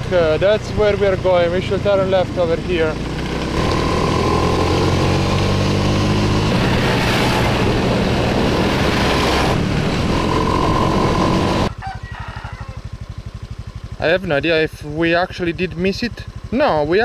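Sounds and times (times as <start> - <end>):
scooter engine running: 0.0 - 11.8, 12.6 - 17.0
wind rushing over microphone: 3.5 - 11.7.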